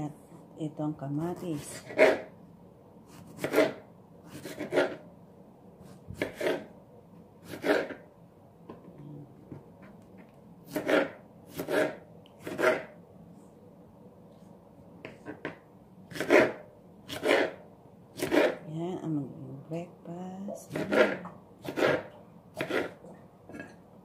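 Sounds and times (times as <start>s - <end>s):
knife slicing tomato on board: 3.1s - 5.0s, 5.8s - 6.7s, 7.4s - 8.0s, 10.7s - 12.9s, 15.2s - 17.6s, 18.2s - 18.6s, 20.6s - 23.7s.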